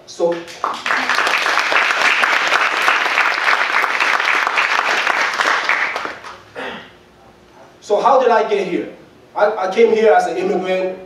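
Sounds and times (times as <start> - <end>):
audience applauding: 0.3 - 6.4.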